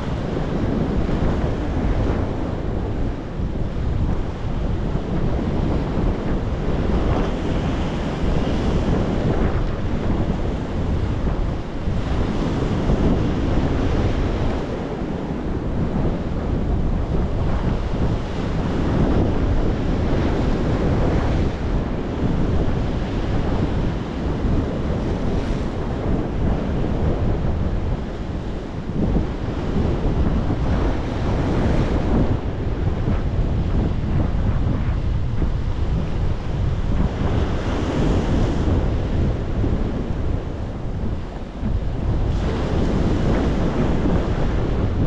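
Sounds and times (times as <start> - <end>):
wind buffeting microphone: 0.0 - 45.0.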